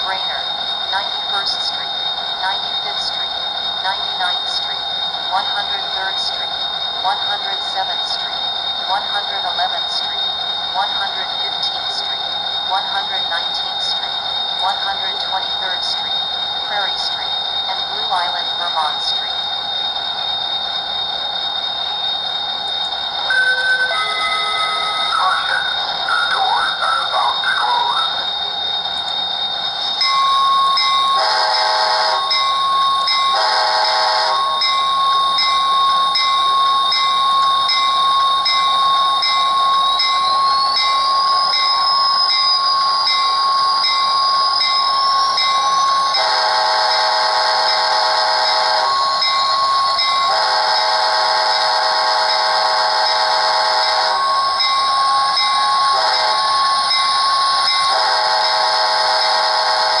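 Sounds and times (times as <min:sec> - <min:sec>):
high whine: 0:07.6 - 1:00.0
model train horn blasts: 0:23.3 - 0:25.2, 0:31.1 - 0:32.3, 0:33.3 - 0:34.4, 0:46.2 - 0:49.0, 0:50.3 - 0:54.2, 0:56.0 - 0:56.5, 0:57.9 - 1:00.0.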